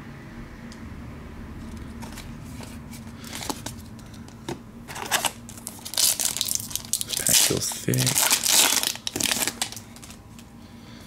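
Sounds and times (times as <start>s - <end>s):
wrapper crinkling: 5.0s - 10.2s.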